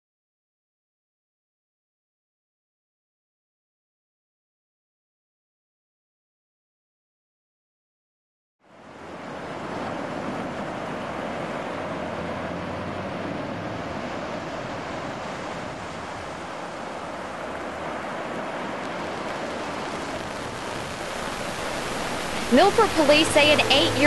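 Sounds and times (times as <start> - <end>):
ocean waves breaking: 8.6 - 24.0.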